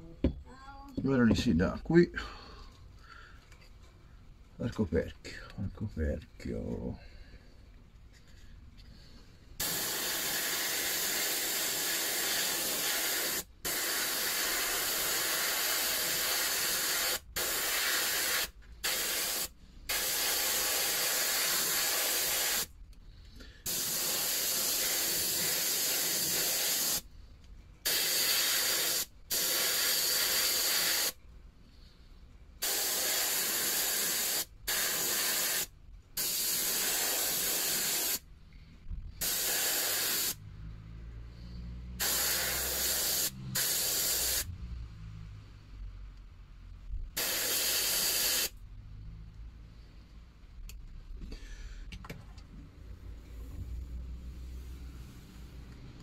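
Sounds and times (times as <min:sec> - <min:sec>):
airbrush spraying hiss: 0:09.6 - 0:22.7, 0:23.6 - 0:27.1, 0:27.8 - 0:31.2, 0:32.6 - 0:38.3, 0:39.2 - 0:40.4, 0:42.0 - 0:44.5, 0:47.2 - 0:48.6.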